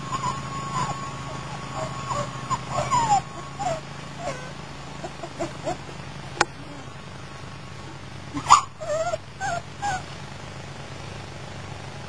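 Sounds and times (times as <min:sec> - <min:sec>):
puppies whimpering: 0:00.0 - 0:07.0, 0:08.3 - 0:10.1.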